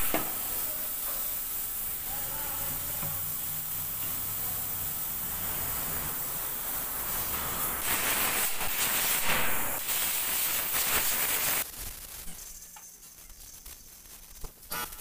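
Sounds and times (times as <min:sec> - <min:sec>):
spray gun hissing: 0:00.0 - 0:11.8.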